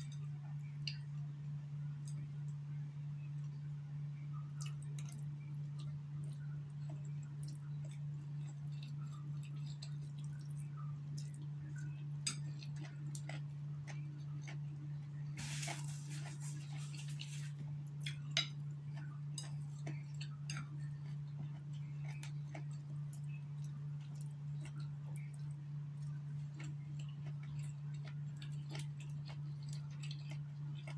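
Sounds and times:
low hum: 0:00.0 - 0:30.9
chewing noodles: 0:04.6 - 0:30.9
rustling noise: 0:15.4 - 0:17.6.

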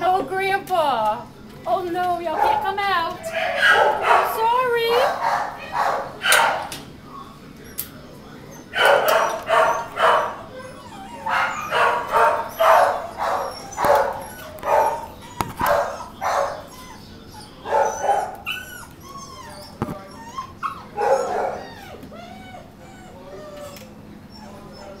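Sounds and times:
dogs barking: 0:02.3 - 0:06.8, 0:08.6 - 0:25.0
puppy whining and yipping: 0:08.5 - 0:25.0.

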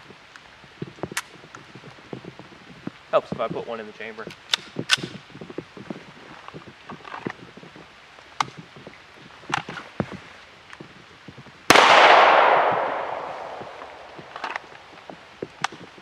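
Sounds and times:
gun handling clicks: 0:04.3 - 0:05.2, 0:11.8 - 0:14.8
pistol shot: 0:11.7 - 0:14.4.

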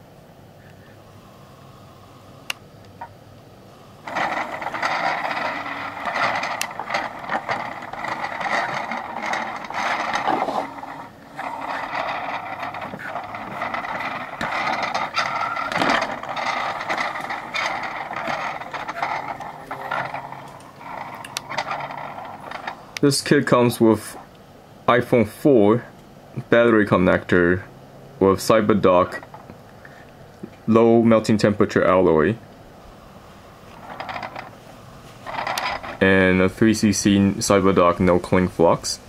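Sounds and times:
rustling and scraping handling noise: 0:04.0 - 0:23.0, 0:33.3 - 0:38.2.

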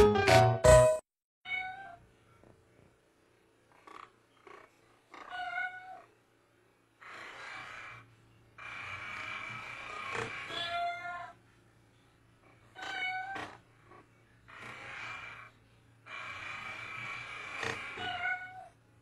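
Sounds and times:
cat meowing: 0:01.5 - 0:02.0, 0:05.2 - 0:06.1, 0:10.4 - 0:11.4, 0:12.7 - 0:13.6, 0:17.9 - 0:18.7.

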